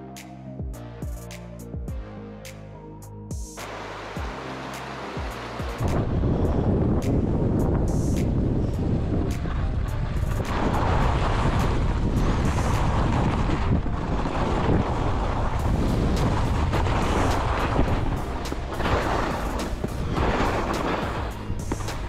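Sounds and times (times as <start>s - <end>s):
music: 0.0s - 22.0s
wind buffeting microphone: 5.6s - 22.0s
skis hissing on snow: 10.2s - 13.6s, 14.2s - 22.0s.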